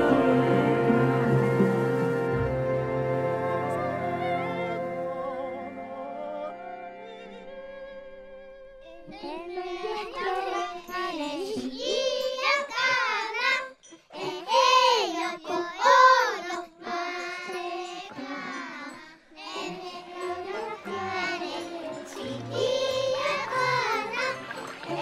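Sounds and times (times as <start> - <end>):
high voice singing: 0.0 - 7.4
low accompanying notes: 19.5 - 25.0.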